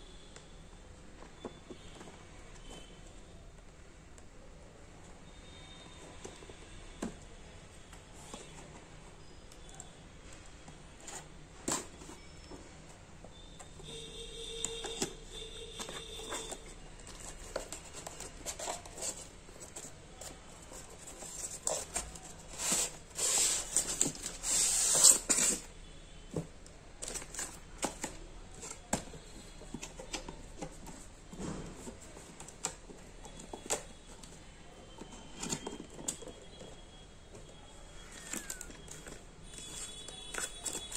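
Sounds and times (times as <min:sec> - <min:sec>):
cardboard box clicks and rustles: 0:14.6 - 0:25.7, 0:26.3 - 0:40.9
polystyrene insert scraping out: 0:22.4 - 0:25.7.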